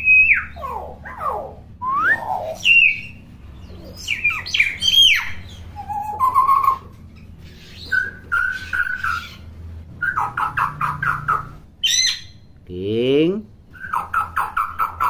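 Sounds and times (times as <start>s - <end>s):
low warbling bird notes: 0.0s - 9.4s
myna whistling calls: 0.0s - 12.5s, 13.7s - 15.0s.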